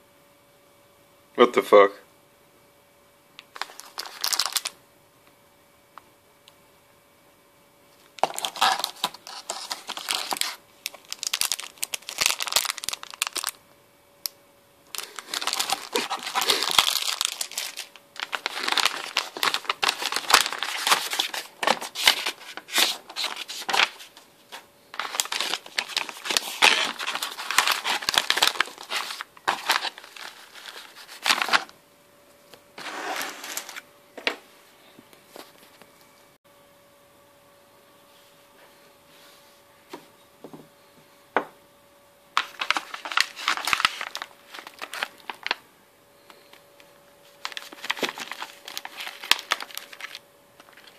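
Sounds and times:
packaging crinkling and rustling: 0:03.4 - 0:04.8, 0:08.2 - 0:13.6, 0:14.9 - 0:31.7, 0:32.8 - 0:33.8, 0:42.4 - 0:45.6, 0:47.2 - 0:50.9.

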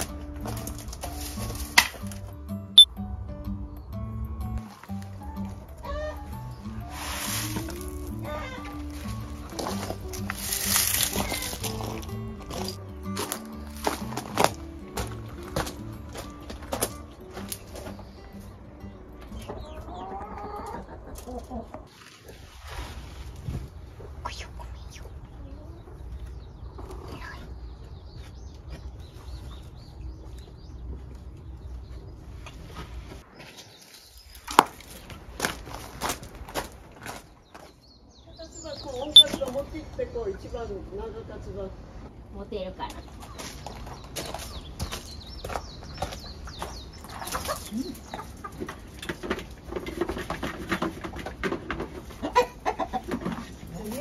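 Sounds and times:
clicks and scrapes on gravel: 0:00.0 - 0:02.2, 0:06.8 - 0:18.0, 0:32.5 - 0:37.8
hens chirping and clucking: 0:04.8 - 0:23.2, 0:23.9 - 0:35.8, 0:42.9 - 0:54.0.

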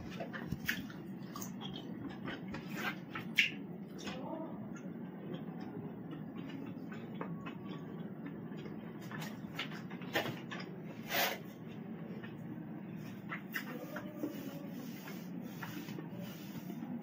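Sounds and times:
chewing: 0:00.0 - 0:10.7
fingers working rice on a plate: 0:13.0 - 0:17.0.

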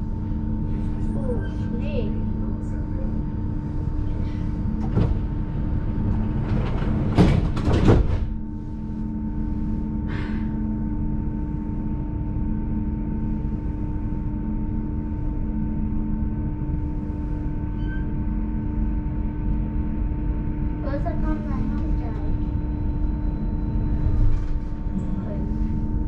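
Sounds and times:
electric hum: 0:00.0 - 0:26.0
tram rumble: 0:00.0 - 0:26.0
loud clattering knocks: 0:04.8 - 0:08.4.

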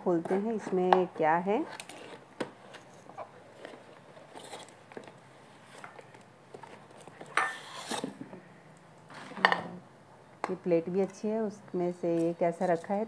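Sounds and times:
packaging rustling: 0:01.8 - 0:08.0.

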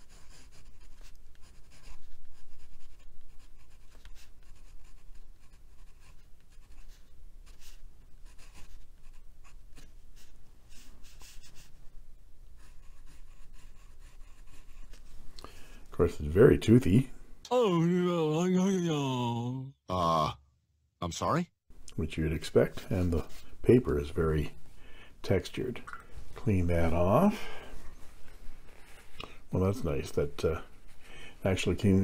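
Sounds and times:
pen nib scratching on paper: 0:00.0 - 0:11.8, 0:12.6 - 0:15.0.

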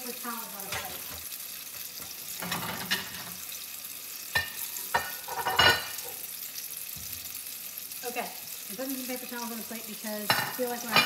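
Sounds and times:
deep-frying sizzle: 0:00.0 - 0:11.0.

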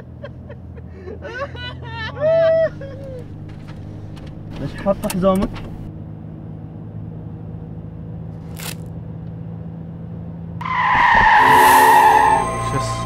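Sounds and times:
car running hum: 0:00.0 - 0:13.0
tyre screech of braking car: 0:10.6 - 0:13.0.

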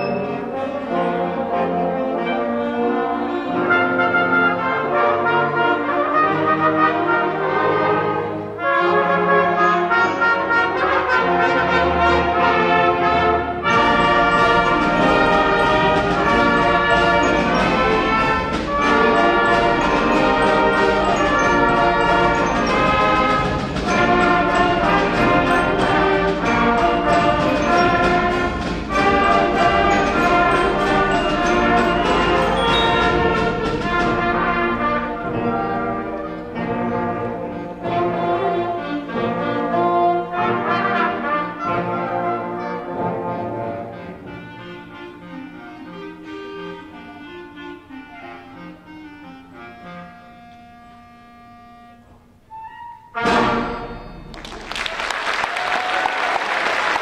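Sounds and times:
concert band playing: 0:00.0 - 0:57.0
steady percussion beat: 0:11.3 - 0:37.2.

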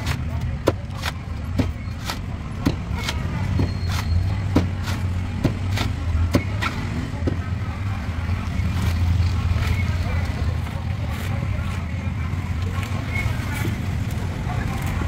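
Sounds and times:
knife chopping coconut: 0:00.0 - 0:07.4.

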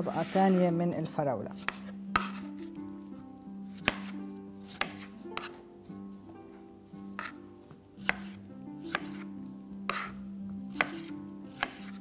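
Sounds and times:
knife tapping cutting board: 0:01.7 - 0:02.4, 0:03.8 - 0:04.1, 0:04.7 - 0:05.6, 0:08.0 - 0:09.2, 0:09.9 - 0:10.1, 0:10.8 - 0:12.0.

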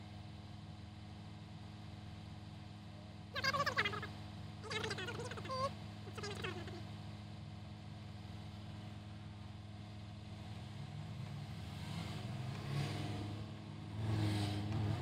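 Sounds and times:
city traffic: 0:00.0 - 0:15.0.

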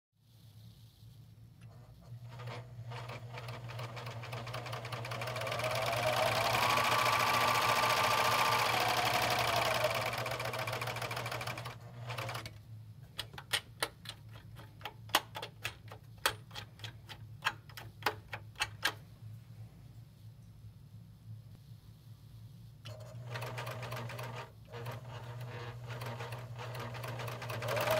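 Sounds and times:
serger motor clattering: 0:02.1 - 0:12.5, 0:22.9 - 0:27.9.

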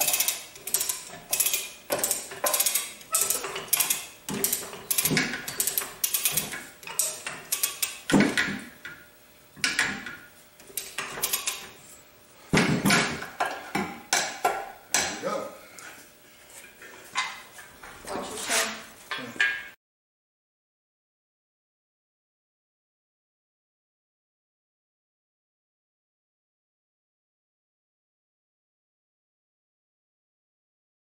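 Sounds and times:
metal clanks and rattles: 0:00.0 - 0:08.6.

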